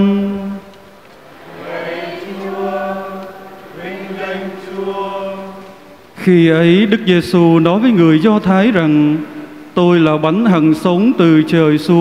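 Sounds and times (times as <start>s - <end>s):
congregation singing in unison: 0.0s - 9.3s
priest chanting: 0.0s - 12.0s.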